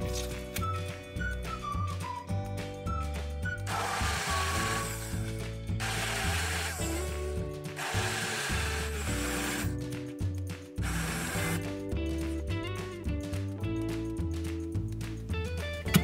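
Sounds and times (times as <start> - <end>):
background music with bass line: 0.0 - 16.0
electric hand blender whirring: 3.6 - 9.9, 10.8 - 11.7.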